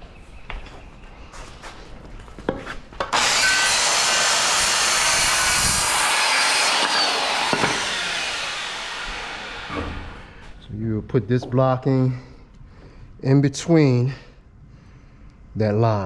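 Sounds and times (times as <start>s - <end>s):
circular saw cutting wood: 3.1s - 10.5s.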